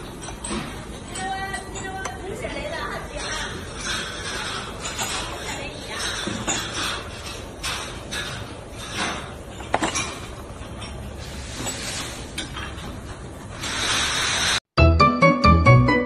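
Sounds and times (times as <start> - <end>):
music: 14.8 - 16.0.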